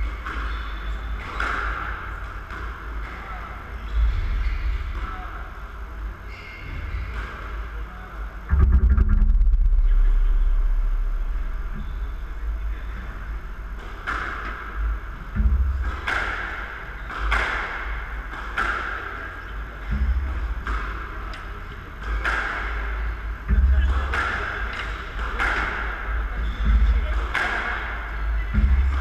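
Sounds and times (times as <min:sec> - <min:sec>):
heavy low rumble: 0:08.4 - 0:14.1.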